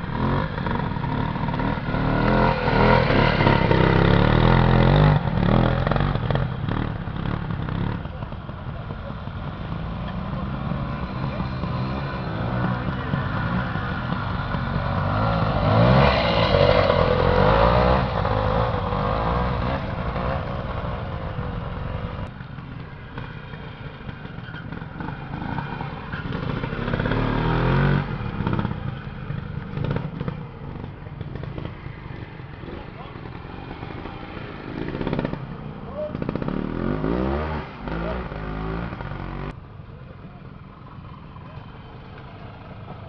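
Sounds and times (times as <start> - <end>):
motorcycle engines revving: 0.0 - 43.0.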